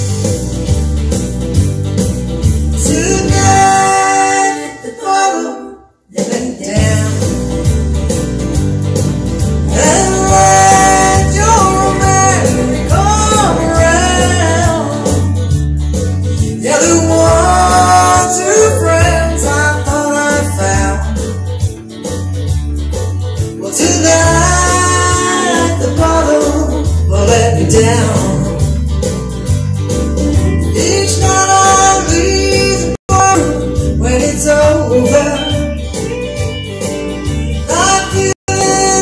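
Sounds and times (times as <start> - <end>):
woman singing country song: 2.8 - 7.3, 9.7 - 15.4, 16.6 - 21.1, 23.6 - 28.6, 30.7 - 35.6, 37.6 - 39.0
strummed acoustic guitar: 6.8 - 39.0.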